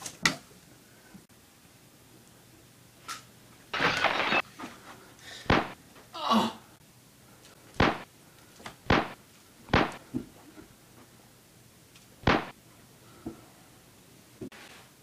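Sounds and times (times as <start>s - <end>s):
sharp thuds: 5.5s - 5.8s, 7.8s - 8.1s, 8.9s - 10.0s, 12.2s - 12.6s.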